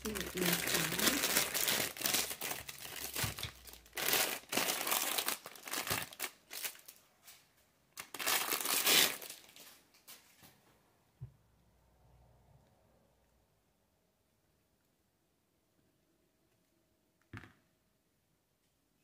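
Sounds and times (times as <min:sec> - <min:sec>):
plastic packaging crinkling: 0:00.0 - 0:07.1, 0:08.0 - 0:09.8.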